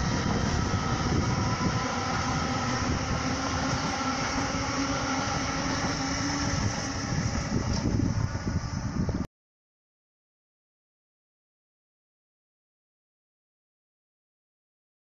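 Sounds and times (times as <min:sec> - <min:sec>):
train passing close by: 0:00.0 - 0:09.2.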